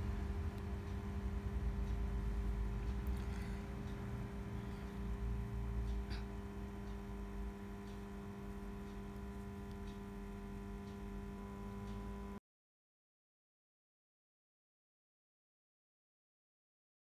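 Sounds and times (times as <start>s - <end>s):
electrical hum: 0.0s - 12.4s
faint light ticks: 8.8s - 12.2s.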